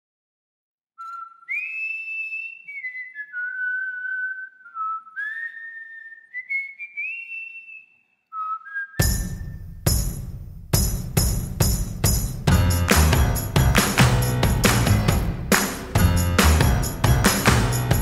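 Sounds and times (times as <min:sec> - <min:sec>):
person whistling a slow tune: 0:01.0 - 0:09.7.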